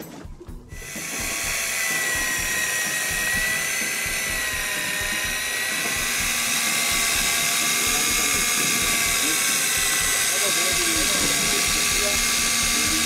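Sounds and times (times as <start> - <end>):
fishing reel motor whining: 0.7 - 13.0.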